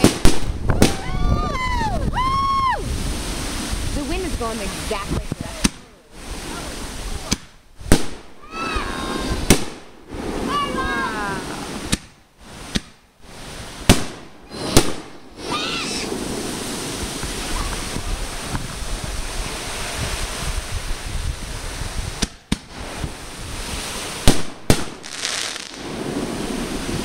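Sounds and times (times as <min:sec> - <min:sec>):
fireworks bursting with bangs: 0:00.0 - 0:27.0
steady rushing noise: 0:08.9 - 0:25.0.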